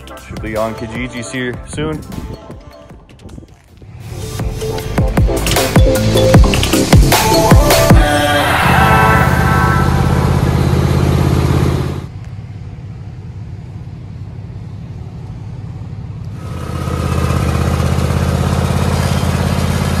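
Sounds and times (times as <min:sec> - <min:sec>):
mower engine idling: 0:09.9 - 0:20.0.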